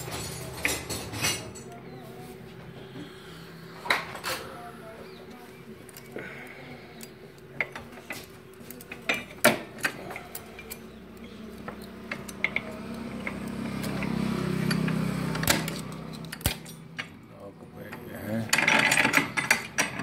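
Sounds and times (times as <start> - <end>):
metal gears clicking and clinking: 0.0 - 1.8, 6.9 - 17.2, 17.9 - 20.0.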